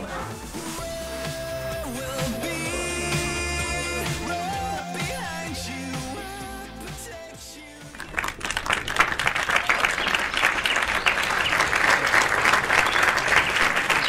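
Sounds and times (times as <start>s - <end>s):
music: 0.0s - 9.0s
crowd applauding: 7.8s - 14.0s.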